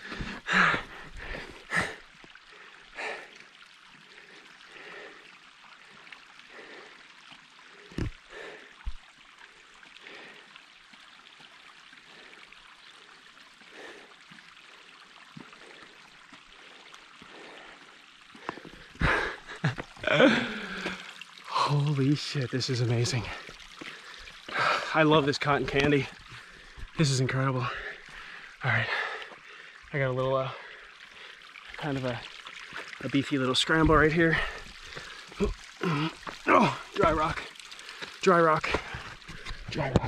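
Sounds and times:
person breathing hard: 0.0 - 3.4.

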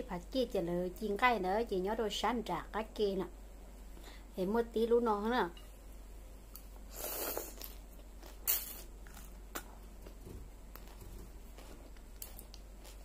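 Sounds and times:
salad being chewed: 6.5 - 13.0.

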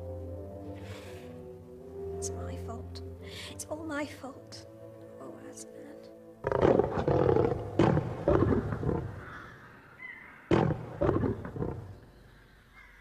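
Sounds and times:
lion roaring: 6.4 - 9.6, 10.5 - 12.1.

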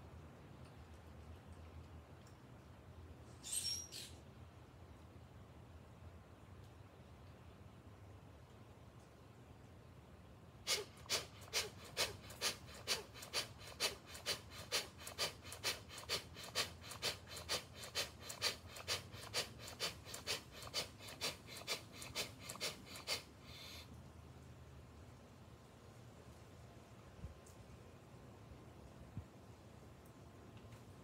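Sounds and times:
rapid forceful breathing: 10.7 - 23.9.

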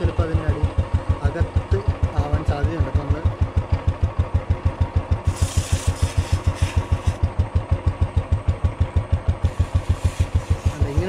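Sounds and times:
motorcycle engine idling: 0.0 - 11.0
aerosol spray hissing: 5.3 - 7.2, 9.4 - 11.0.

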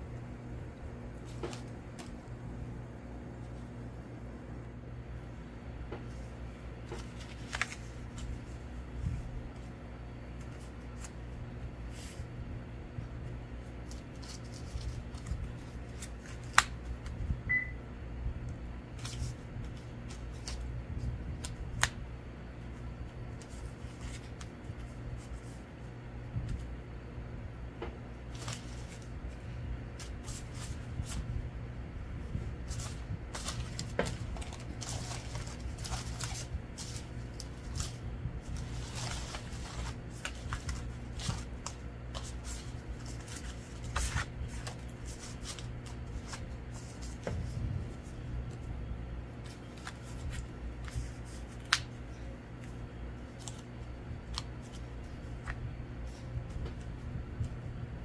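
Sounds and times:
steady low hum: 0.0 - 58.0
paper rustling and sliding: 6.0 - 12.3, 13.7 - 16.7, 19.0 - 21.8, 28.3 - 31.4, 32.2 - 48.7, 49.3 - 51.9.

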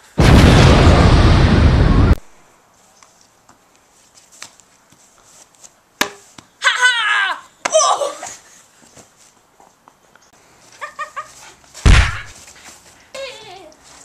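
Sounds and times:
sharp knock: 11.8 - 12.3.

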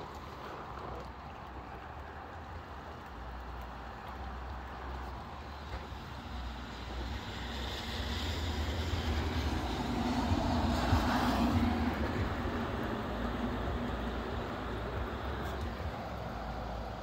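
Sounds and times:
rain: 0.0 - 17.0
rushing wind: 4.8 - 17.0.

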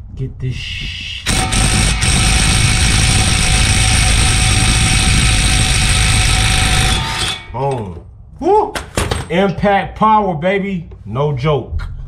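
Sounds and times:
impact wrench hammering: 1.2 - 8.0.

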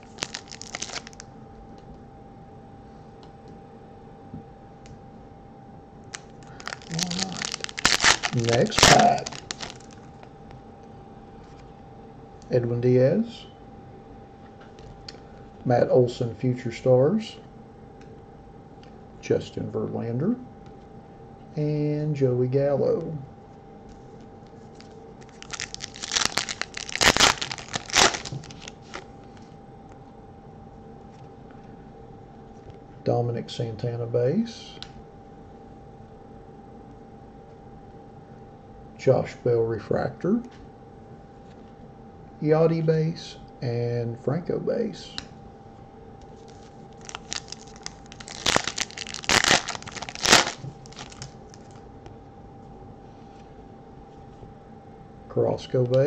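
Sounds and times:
foil wrapper crinkling: 0.0 - 1.2, 6.1 - 10.3, 24.7 - 29.1, 46.4 - 51.8
foil wrapper tearing: 0.0 - 1.2, 6.1 - 10.2, 25.2 - 29.0, 46.4 - 51.8.

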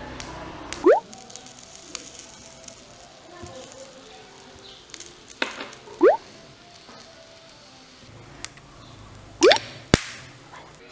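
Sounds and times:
rice sizzling in a wok: 0.0 - 10.9
upward-sliding bloop effect: 0.8 - 1.0, 6.0 - 6.2.

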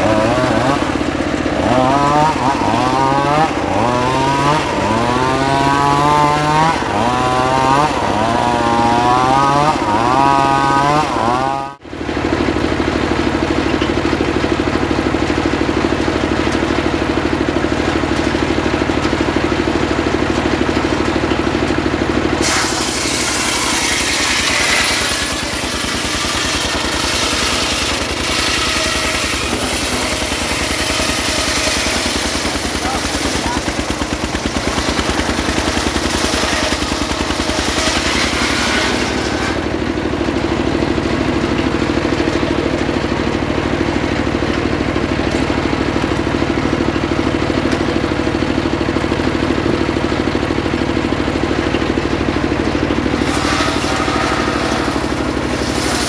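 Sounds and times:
circular saw cutting log: 0.0 - 56.0
stationary engine running: 0.0 - 56.0
saw blade spinning freely: 22.4 - 39.7, 53.1 - 56.0.

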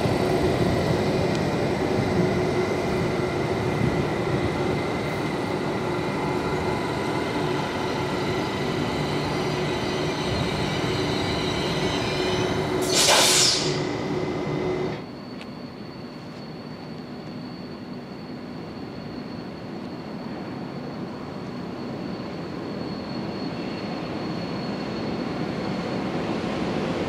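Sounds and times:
electric train whine: 0.0 - 27.0
loud hiss: 12.7 - 14.0.

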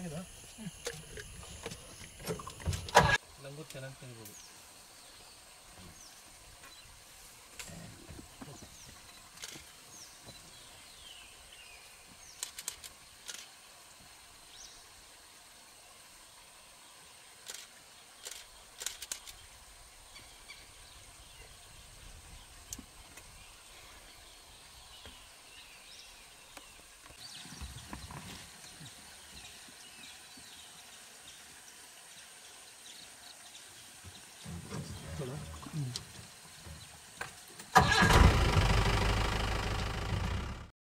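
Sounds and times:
small birds chirping: 7.6 - 13.5
sharp clicks and snaps: 12.4 - 13.5, 17.5 - 19.4.

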